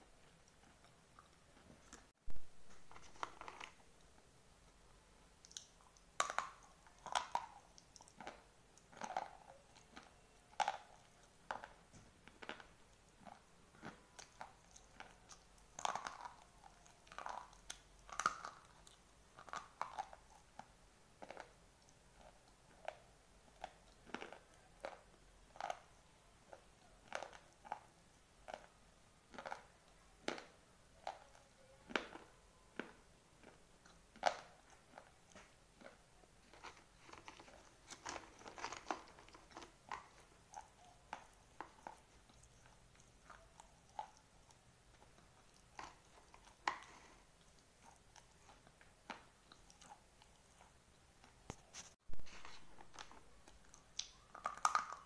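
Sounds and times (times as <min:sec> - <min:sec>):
crunching slate pencils: 0:29.3 - 0:55.0.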